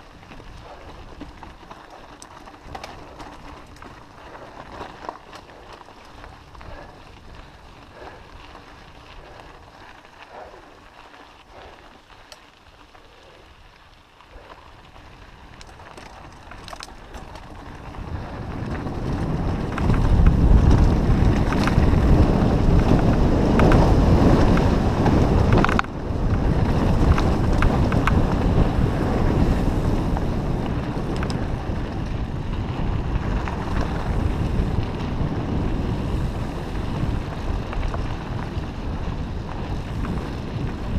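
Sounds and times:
wind buffeting microphone: 14.3 - 40.9.

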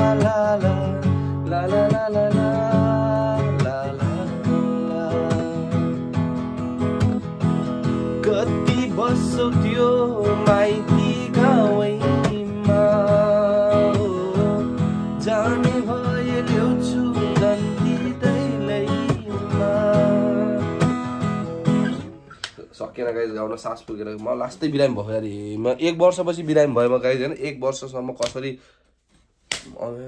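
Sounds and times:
man singing: 0.0 - 6.1, 8.1 - 21.2
acoustic guitar strumming: 0.0 - 22.4.

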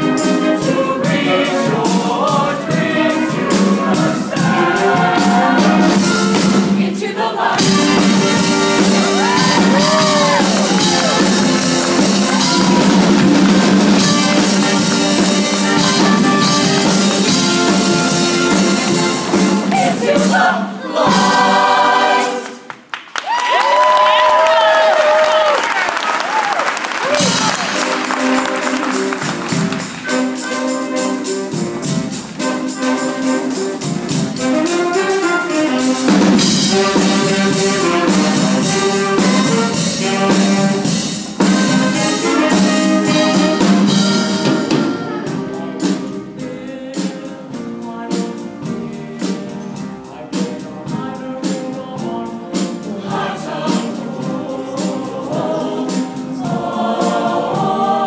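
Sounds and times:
choir singing with accompaniment: 0.0 - 22.9, 27.0 - 58.0.

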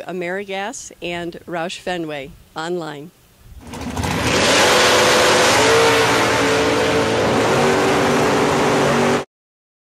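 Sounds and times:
race car engine roaring: 3.6 - 9.2.

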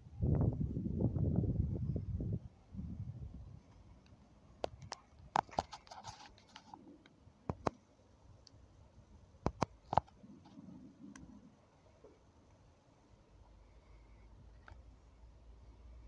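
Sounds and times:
faint outdoor background noise: 0.0 - 16.0
sharp clicks and taps: 7.5 - 7.8, 9.4 - 10.2.

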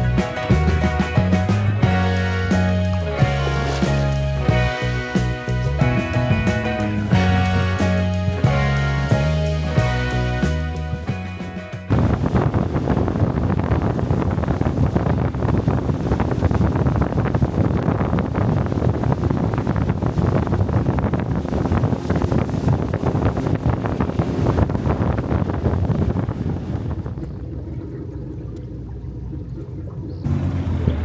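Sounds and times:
motorboat engine: 0.0 - 31.0
water rushing: 0.0 - 31.0
wind buffeting microphone: 11.5 - 31.0.

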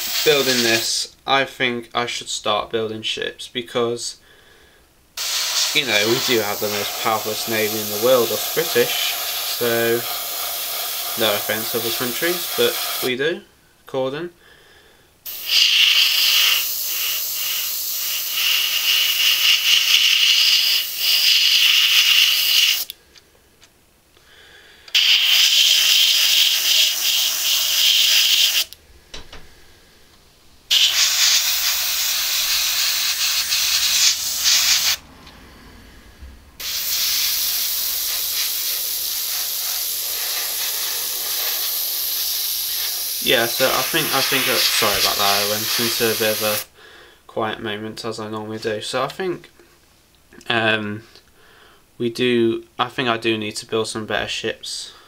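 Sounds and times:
spray paint hissing: 0.0 - 1.0, 5.2 - 13.1, 15.3 - 22.9, 24.9 - 28.8, 30.7 - 35.0, 36.6 - 46.7.

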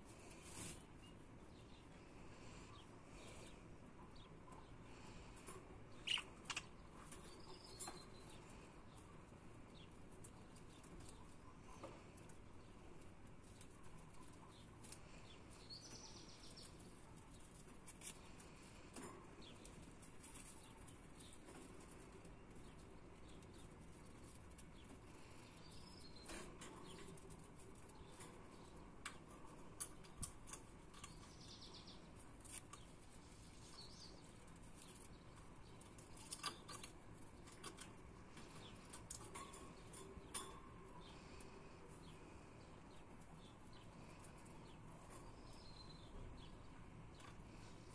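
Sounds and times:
budgerigar chirps: 6.0 - 6.7.

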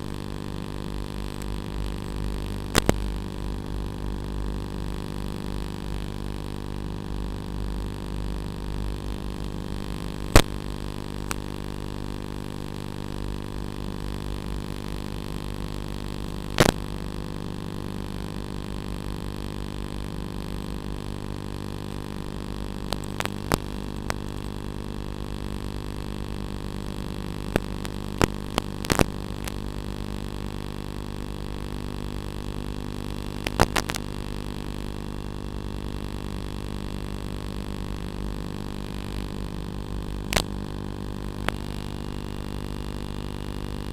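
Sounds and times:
electrical buzzing hum: 0.0 - 43.9.

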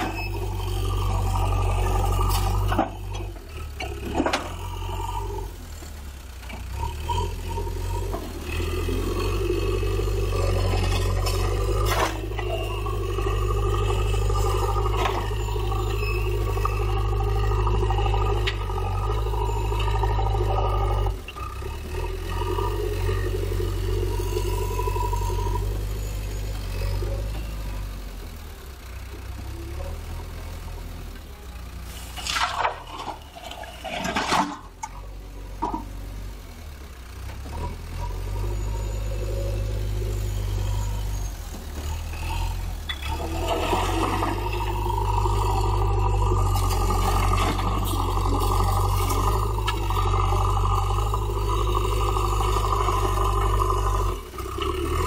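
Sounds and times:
diesel engine under load: 0.0 - 55.0
rocks and soil clattering: 9.0 - 20.0, 32.1 - 35.0, 41.8 - 51.0.

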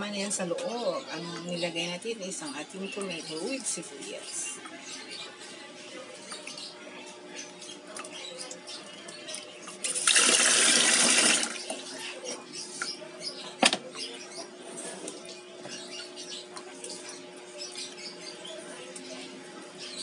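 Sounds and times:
water running from a tap: 9.8 - 11.7.

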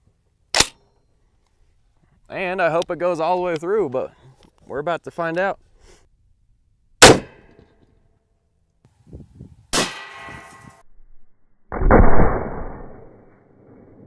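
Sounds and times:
rifle shot: 0.5 - 0.8, 7.0 - 7.5, 9.7 - 10.4, 11.7 - 13.3
slowed-down deep boom: 10.8 - 14.0.

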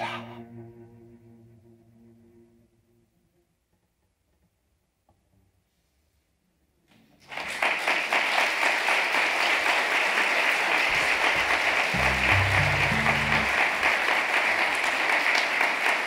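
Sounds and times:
audience applause: 7.2 - 16.0
low tone: 12.0 - 13.8.

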